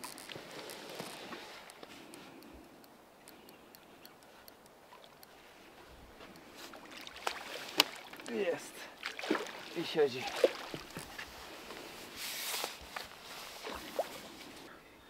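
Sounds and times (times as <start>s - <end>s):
light ticks: 0.0s - 6.6s
water sloshing: 4.8s - 12.0s, 13.0s - 14.7s
fish thrashing and splashing: 6.7s - 8.3s, 9.0s - 11.2s.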